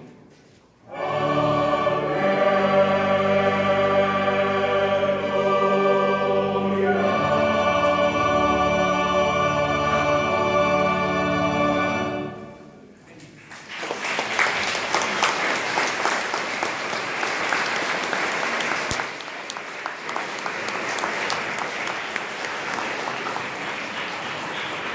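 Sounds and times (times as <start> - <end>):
choir holding final chord: 0.9 - 12.7
audience applause: 13.4 - 24.9.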